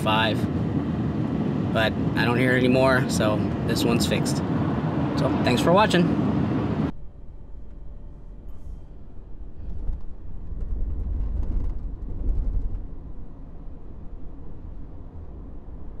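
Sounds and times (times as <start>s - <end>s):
car cabin road rumble: 0.0s - 16.0s.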